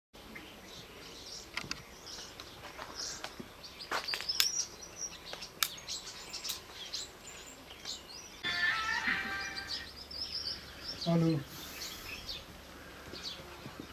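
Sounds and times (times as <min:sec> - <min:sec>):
faint outdoor background noise: 0:00.2 - 0:13.9
small birds chirping: 0:00.2 - 0:13.9.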